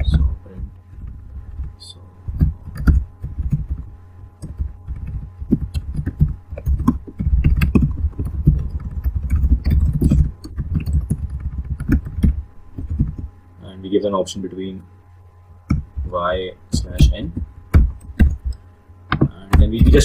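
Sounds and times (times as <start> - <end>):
fast typing on laptop keyboard: 0.9 - 13.3, 15.7 - 20.0.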